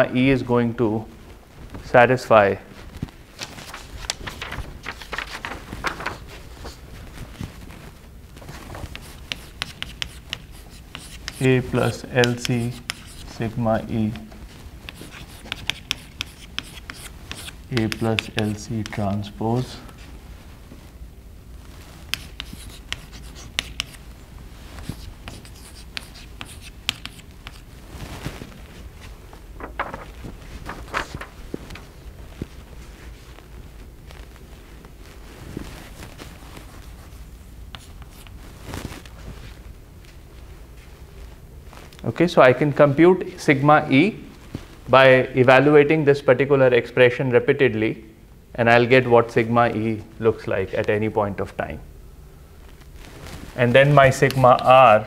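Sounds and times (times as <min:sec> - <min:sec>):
chalk writing on blackboard: 0:08.9 - 0:11.6, 0:12.2 - 0:13.4, 0:14.9 - 0:19.0, 0:22.1 - 0:24.0, 0:24.8 - 0:27.6, 0:37.7 - 0:38.3
footsteps walking: 0:24.6 - 0:42.1.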